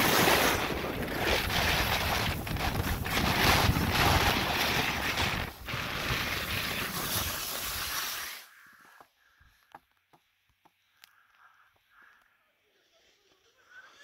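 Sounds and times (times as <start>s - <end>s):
wind rushing over microphone: 0.0s - 7.8s.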